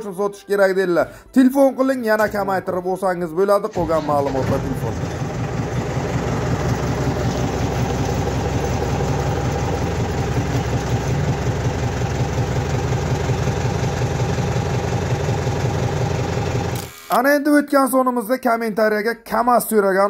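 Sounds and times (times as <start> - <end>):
diesel engine idling: 3.7 - 16.8.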